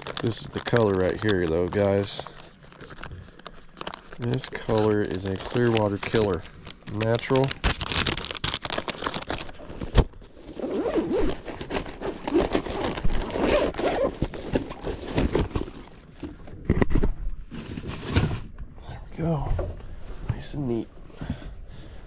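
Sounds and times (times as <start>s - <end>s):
zipper being drawn: 10.5s - 15.1s.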